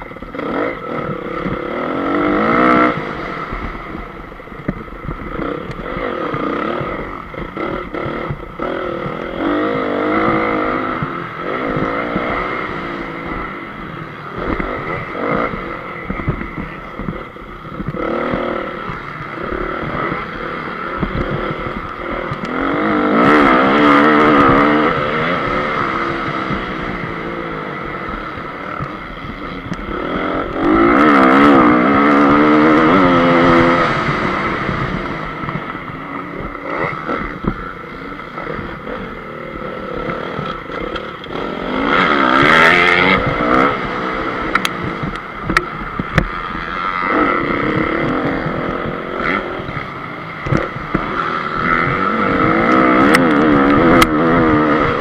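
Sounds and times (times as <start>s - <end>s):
motocross bike engine revving: 0.0s - 55.0s
sharp ticks: 35.3s - 48.6s.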